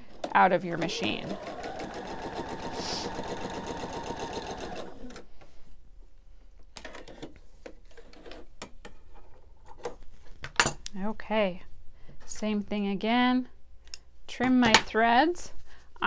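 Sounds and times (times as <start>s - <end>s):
sewing machine stitching: 0.3s - 5.2s.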